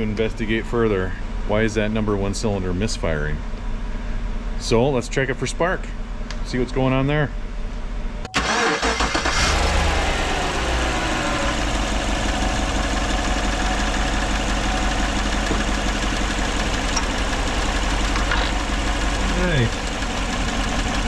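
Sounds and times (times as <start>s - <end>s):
truck engine idling with misfire: 8.4s - 21.0s.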